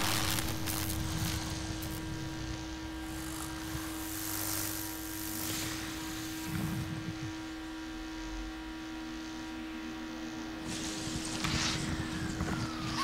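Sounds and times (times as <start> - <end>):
low rumble: 0.0 - 4.0
crackling electrical blast: 0.0 - 7.2, 10.6 - 13.0
streetlight buzzing hum: 0.0 - 13.0.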